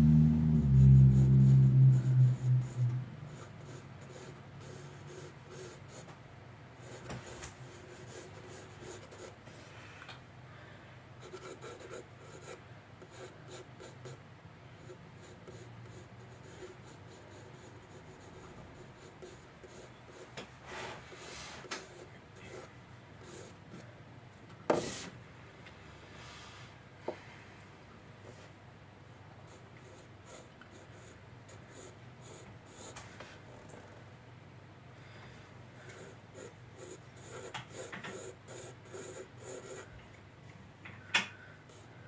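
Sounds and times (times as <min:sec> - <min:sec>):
loud low hum: 0:00.0 - 0:04.6
pencil scratching on paper: 0:00.8 - 0:06.1, 0:06.8 - 0:09.4, 0:11.2 - 0:14.2, 0:14.8 - 0:20.3, 0:29.5 - 0:33.0, 0:35.9 - 0:39.9.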